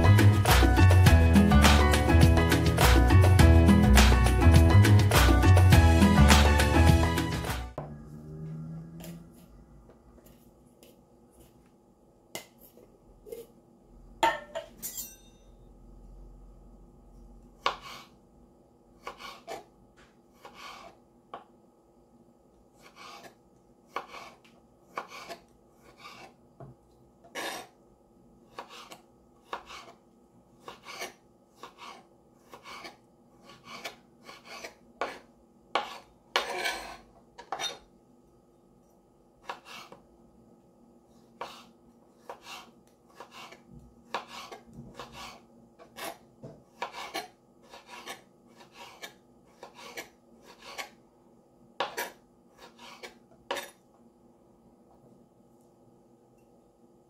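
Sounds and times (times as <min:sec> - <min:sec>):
knife slicing fruit on board: 0:17.6 - 0:18.1, 0:19.0 - 0:19.7, 0:20.3 - 0:21.5, 0:22.8 - 0:26.4, 0:28.5 - 0:30.0, 0:30.6 - 0:37.8, 0:39.4 - 0:40.0, 0:41.4 - 0:51.0, 0:51.8 - 0:53.7.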